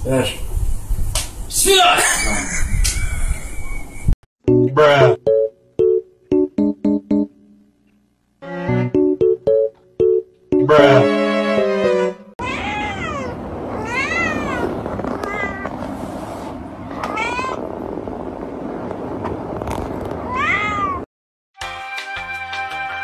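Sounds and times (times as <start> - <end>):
piano music: 4.4 - 7.8, 8.4 - 12.4
cat meowing: 12.4 - 15.8, 16.9 - 17.7, 20.3 - 21.1.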